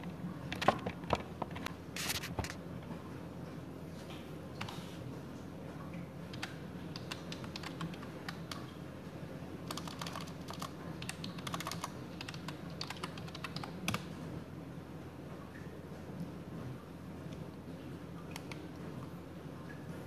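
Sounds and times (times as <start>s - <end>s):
computer keyboard key clicks: 6.3s - 8.6s, 9.7s - 14.0s.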